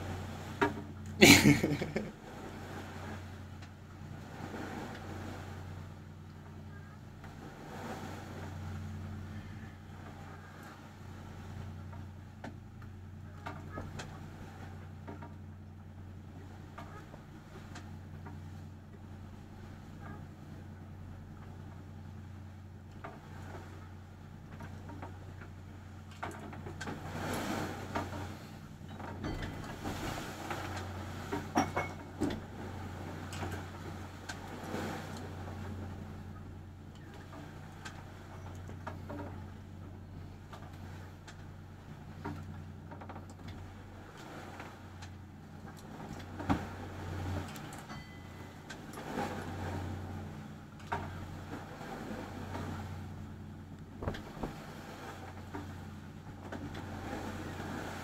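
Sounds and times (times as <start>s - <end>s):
waves rushing: 0.0s - 3.4s, 4.0s - 6.0s, 7.4s - 9.6s, 26.8s - 36.3s, 45.8s - 53.3s, 54.0s - 58.0s
boat engine droning: 0.0s - 58.0s
wind: 0.0s - 58.0s.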